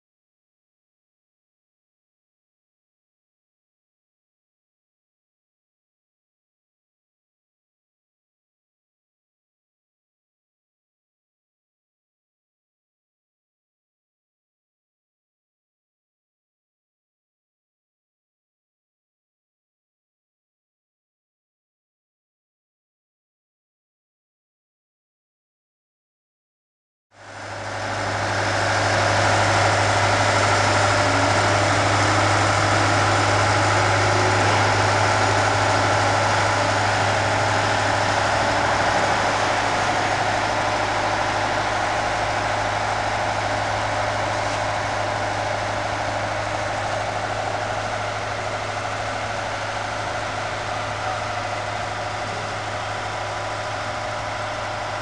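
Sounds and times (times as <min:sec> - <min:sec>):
large engine humming: 0:27.2 - 0:55.0.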